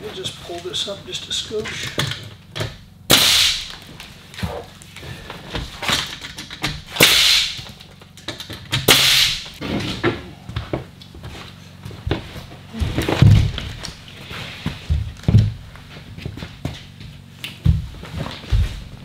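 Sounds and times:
pneumatic nailer shots: 0:03.1 - 0:03.9, 0:05.8 - 0:07.8, 0:08.7 - 0:09.6.

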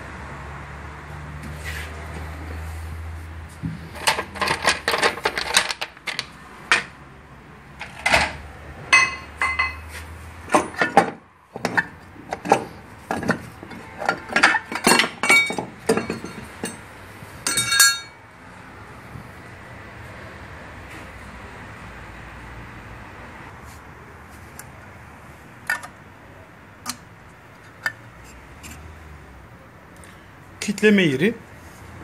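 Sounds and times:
metal tools clinking: 0:04.0 - 0:06.9, 0:07.8 - 0:18.2
metallic rattling: 0:07.8 - 0:09.9, 0:10.5 - 0:18.2.

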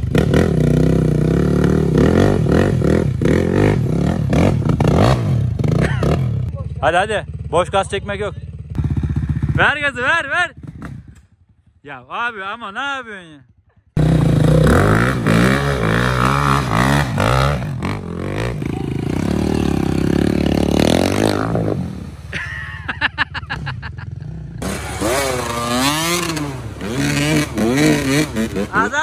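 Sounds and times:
dirt bike engines revving: 0:00.0 - 0:11.4, 0:12.1 - 0:29.0
rapid engine pulsing: 0:05.6 - 0:11.6.

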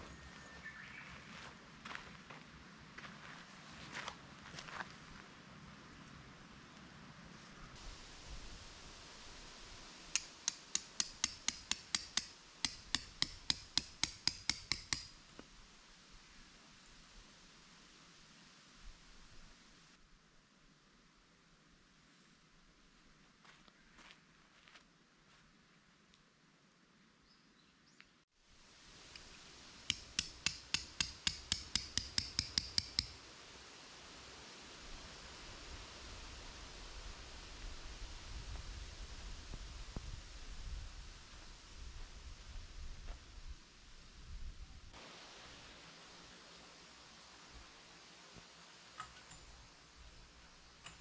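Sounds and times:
hammer driving tent stake: 0:10.2 - 0:15.1, 0:29.9 - 0:33.2.

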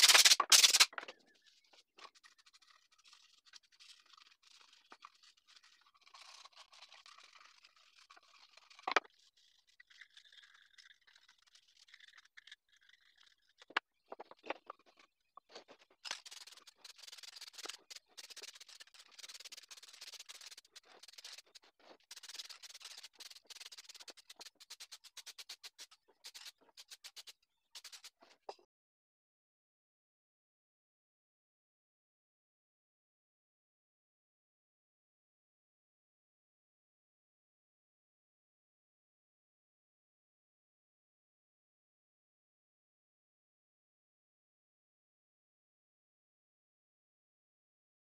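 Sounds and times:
aerosol spray can hissing: 0:00.0 - 0:00.8.

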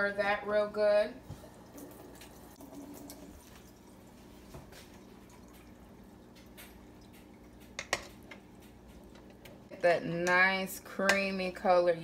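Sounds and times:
spoon clicking on pot: 0:06.3 - 0:09.4.

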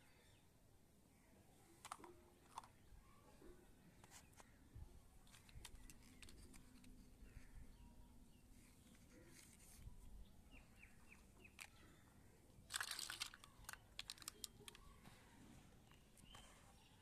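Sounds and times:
faint bird chirps: 0:02.6 - 0:12.4, 0:13.3 - 0:17.0
crinkling rustle: 0:05.2 - 0:07.6, 0:08.5 - 0:10.2, 0:12.7 - 0:16.8.

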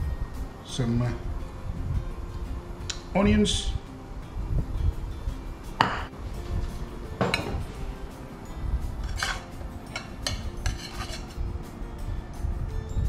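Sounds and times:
faint background music: 0:00.0 - 0:13.0
metal spoon clinking on glass and plate: 0:09.0 - 0:11.4.

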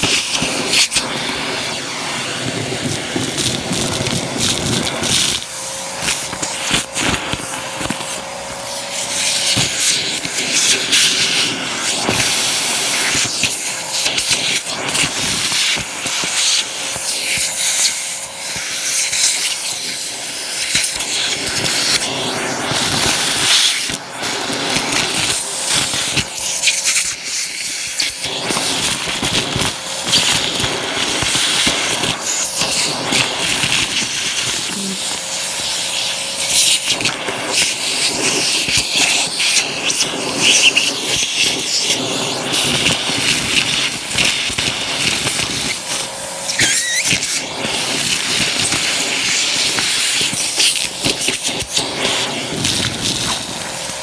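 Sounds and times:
grit rattling up vacuum hose: 0:00.0 - 0:54.0
vacuum cleaner suction: 0:00.0 - 0:54.0.

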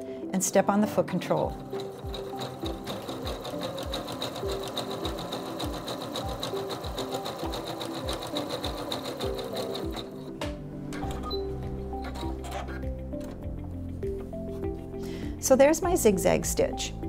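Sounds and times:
sewing machine stitching: 0:01.5 - 0:10.3, 0:12.0 - 0:12.8.

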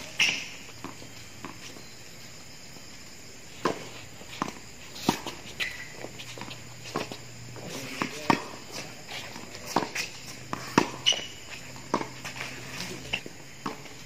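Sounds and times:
shoe squeak: 0:00.0 - 0:02.0, 0:03.8 - 0:13.2
tennis ball hit and bouncing: 0:03.6 - 0:13.9.

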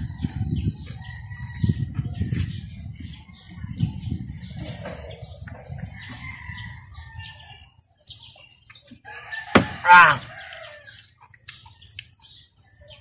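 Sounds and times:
rooster crowing: 0:09.0 - 0:11.0.

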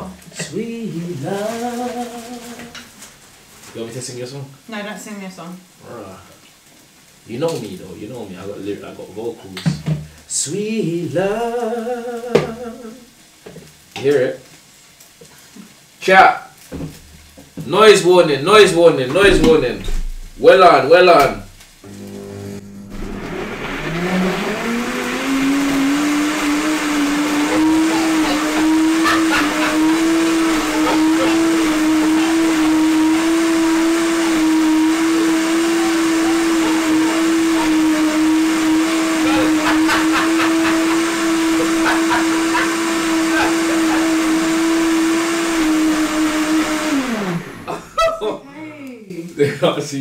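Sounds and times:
electric blender running: 0:21.8 - 0:47.9.

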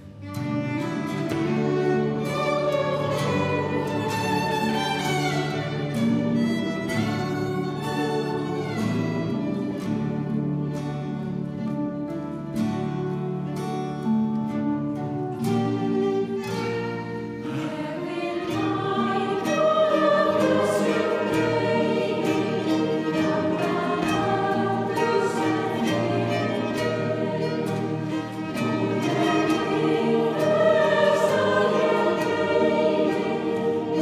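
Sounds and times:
fiddle: 0:00.0 - 0:34.0
strummed acoustic guitar: 0:00.0 - 0:34.0
mixed choir singing: 0:00.8 - 0:10.5, 0:17.4 - 0:34.0.

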